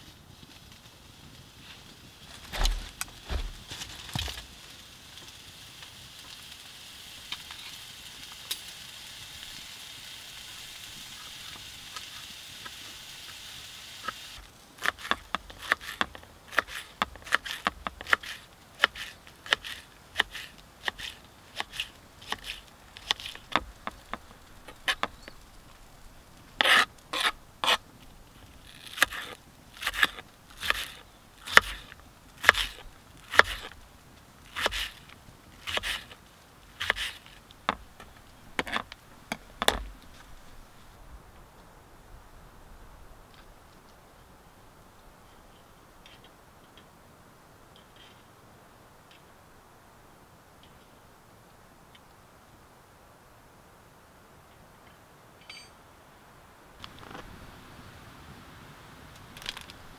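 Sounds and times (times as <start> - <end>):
hot dogs sizzling in a frying pan: 4.4 - 38.5.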